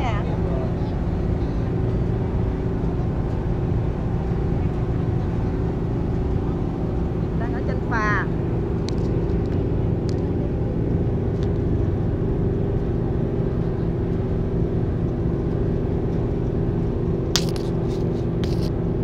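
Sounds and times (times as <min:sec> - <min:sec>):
ferry engines droning: 0:00.0 - 0:19.0.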